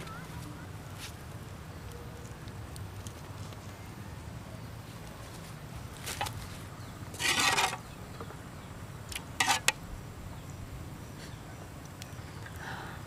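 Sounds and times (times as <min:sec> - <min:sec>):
metal spoon scraping wok: 0:07.2 - 0:07.9, 0:09.4 - 0:09.8.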